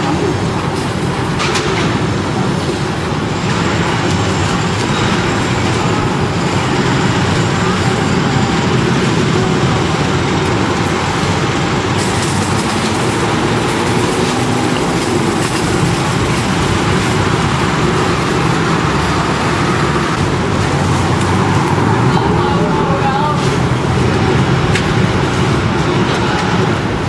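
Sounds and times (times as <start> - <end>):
busy street traffic: 0.0 - 27.0.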